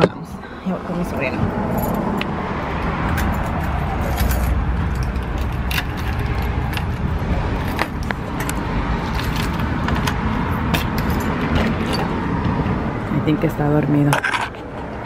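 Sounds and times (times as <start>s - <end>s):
low rumble: 0.2s - 13.4s
keys jangling: 3.1s - 7.1s.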